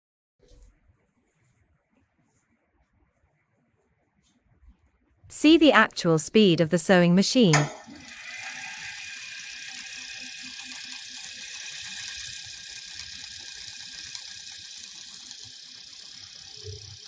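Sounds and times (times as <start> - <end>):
sewing machine running: 7.8 - 17.0.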